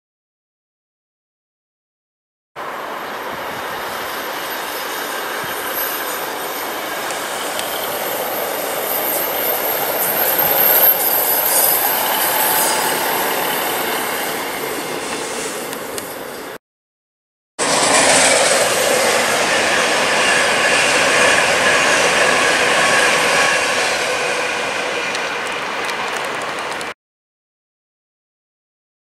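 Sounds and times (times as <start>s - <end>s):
diesel train passing: 2.6s - 16.6s, 17.6s - 27.0s
train wheel clicks: 3.8s - 13.9s, 24.8s - 27.0s.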